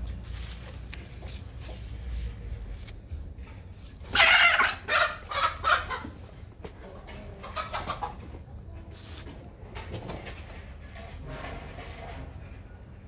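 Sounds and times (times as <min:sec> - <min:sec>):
chicken clucking: 0:03.3 - 0:10.6.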